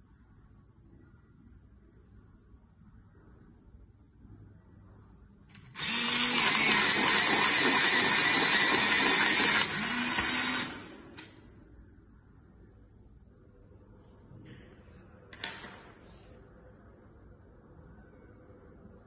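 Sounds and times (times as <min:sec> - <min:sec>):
electric pencil sharpener whirring: 0:05.8 - 0:10.9.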